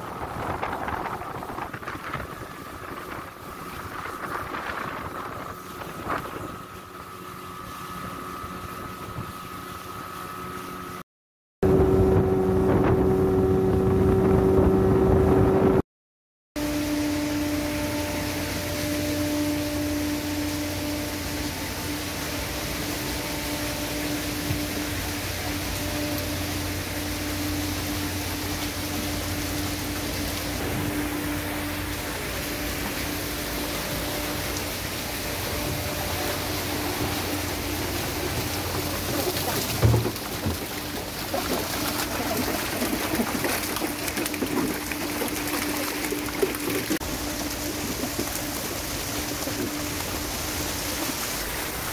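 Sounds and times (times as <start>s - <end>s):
wind on microphone: 0.0s - 6.8s, 11.6s - 15.8s
outboard motor hum: 0.0s - 11.0s, 11.6s - 15.8s, 16.6s - 51.9s
water rushing past: 16.6s - 51.9s.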